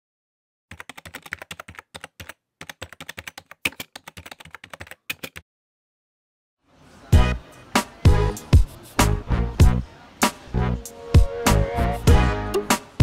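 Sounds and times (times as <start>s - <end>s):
computer keyboard typing: 0.7s - 5.4s.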